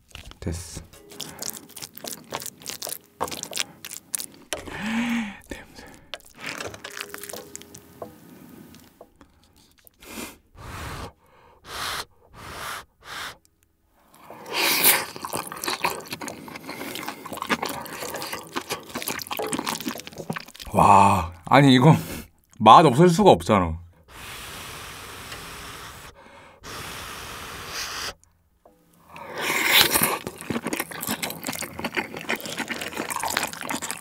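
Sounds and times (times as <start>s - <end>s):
wet chewing: 0.0s - 10.1s, 14.0s - 20.8s, 29.0s - 34.0s.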